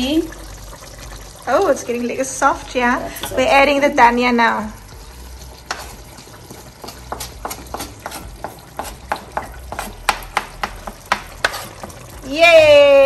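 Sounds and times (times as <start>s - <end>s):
wooden spoon tapping on chopping board: 6.8s - 12.0s.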